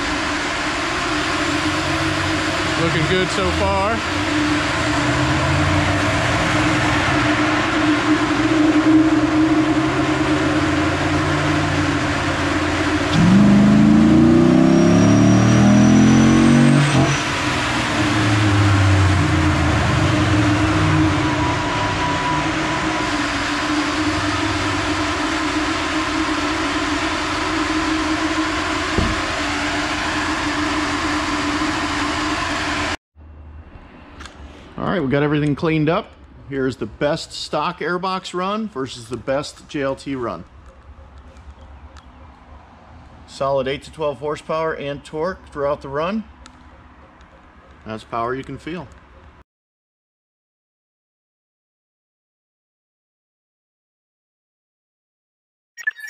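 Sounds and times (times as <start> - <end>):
engine revving on a dyno: 0.0 - 33.0
steady hum: 0.0 - 35.0.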